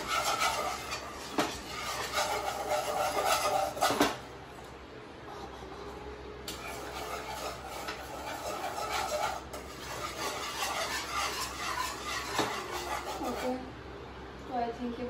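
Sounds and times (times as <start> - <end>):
whisk scraping a pan: 0.0 - 4.2, 6.5 - 13.7.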